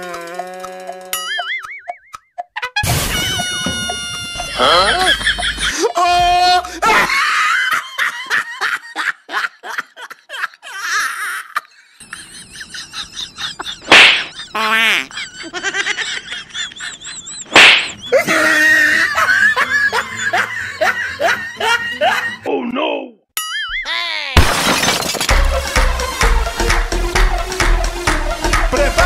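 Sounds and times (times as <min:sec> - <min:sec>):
bursts of laughter: 0:04.2 - 0:22.5.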